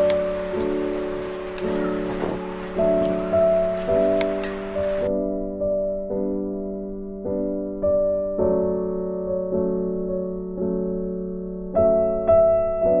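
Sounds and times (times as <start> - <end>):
slow gentle piano music: 0.0 - 13.0.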